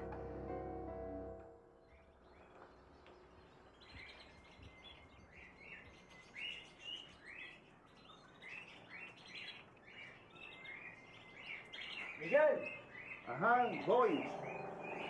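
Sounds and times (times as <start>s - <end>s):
parrots chirping: 5.5s - 15.0s.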